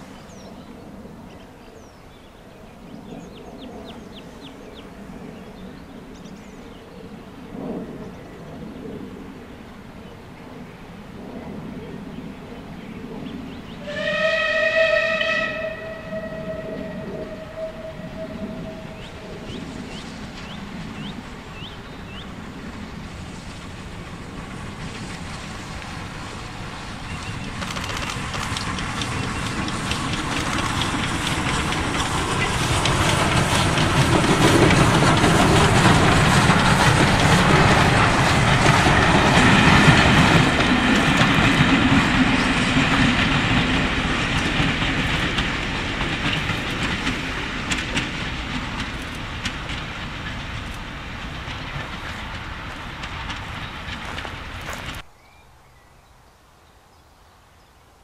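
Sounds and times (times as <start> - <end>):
distant steam locomotive rumble: 0.0 - 55.1
small birds singing: 0.2 - 7.0, 18.2 - 22.4
clicking train wheels: 13.9 - 55.0.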